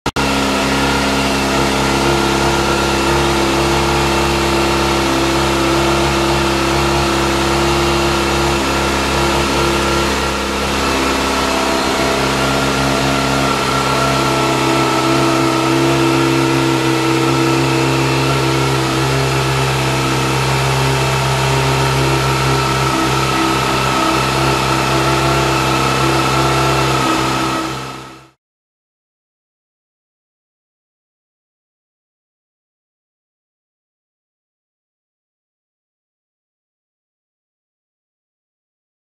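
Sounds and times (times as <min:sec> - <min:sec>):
motorcycle engine idling: 0:00.2 - 0:28.2.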